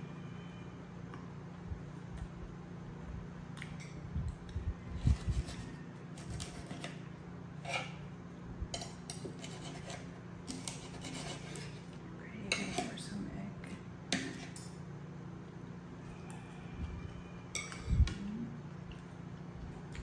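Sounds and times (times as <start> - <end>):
steady low hum: 0.0 - 20.0
cutlery scraping a plate: 5.0 - 7.0, 7.6 - 8.1, 8.7 - 13.1, 14.1 - 14.8.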